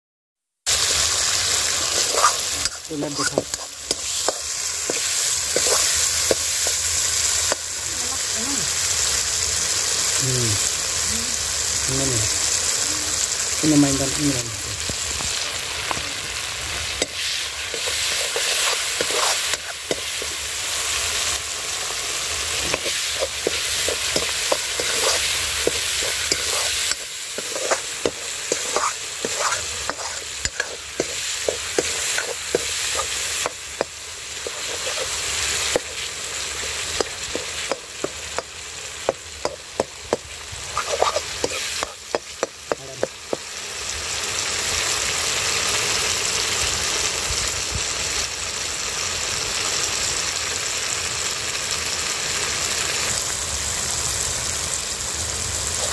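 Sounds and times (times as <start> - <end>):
spices frying in oil: 0.7 - 55.9
ladle stirring and scraping: 1.8 - 6.8, 17.0 - 20.4, 22.6 - 43.2.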